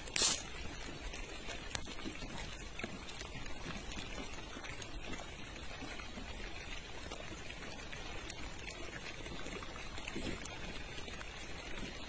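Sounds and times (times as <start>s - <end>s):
water hissing: 0.0s - 0.5s.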